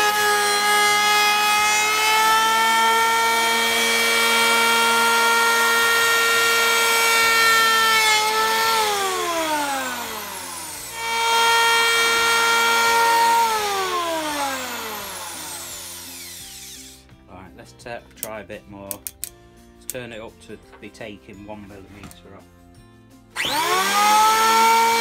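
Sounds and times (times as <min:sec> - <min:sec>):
electric planer whine: 0:00.0 - 0:17.0, 0:23.4 - 0:25.0.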